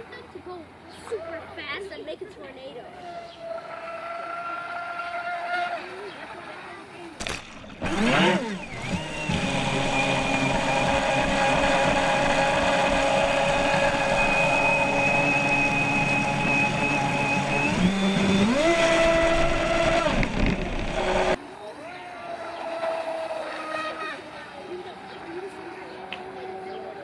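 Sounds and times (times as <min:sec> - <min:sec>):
water rushing along hull: 0:03.0 - 0:27.0
electric motor whining: 0:07.4 - 0:21.4.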